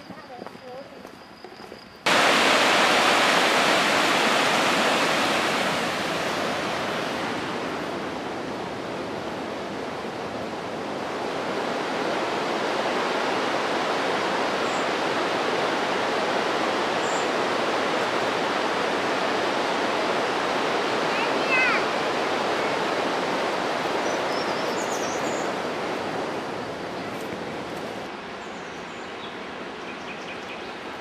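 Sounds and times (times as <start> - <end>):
river rushing over rocks: 2.1 - 28.1.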